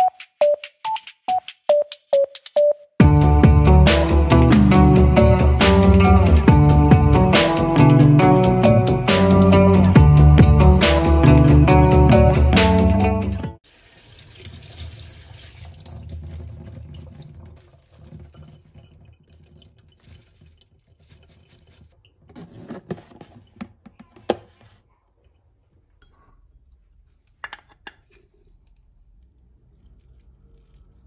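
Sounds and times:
tap water running into sink: 13.6s - 22.3s
water dripping: 13.6s - 22.3s, 28.4s - 31.0s
dishes knocking and clinking: 26.0s - 26.6s, 27.4s - 28.0s.

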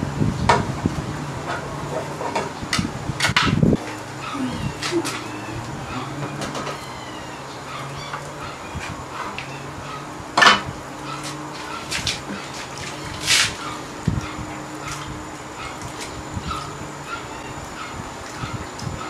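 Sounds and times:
water splash: 10.4s - 14.2s.

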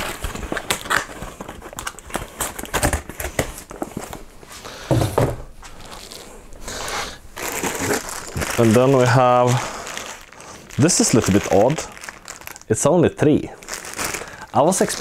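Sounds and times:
cardboard and plastic packaging rustling: 0.0s - 15.0s.

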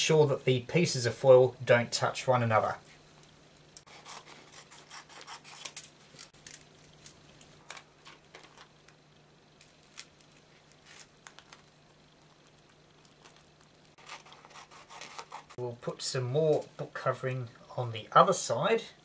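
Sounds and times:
faint steady low hum: 0.0s - 19.0s
foil and plastic crinkling: 5.4s - 9.0s, 9.6s - 15.6s.

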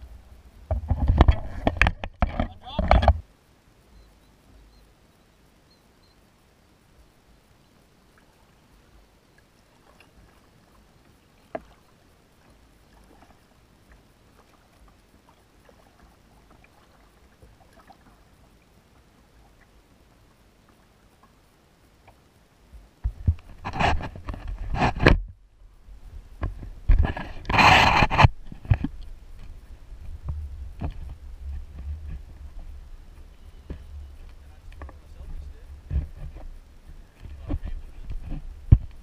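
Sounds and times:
paddle splashing in water: 9.4s - 22.2s.

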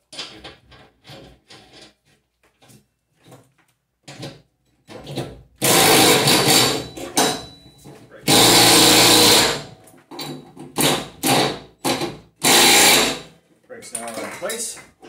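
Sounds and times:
cordless drill spinning: 8.3s - 9.6s, 12.4s - 13.2s
metal parts clicking and rattling: 13.9s - 14.6s.

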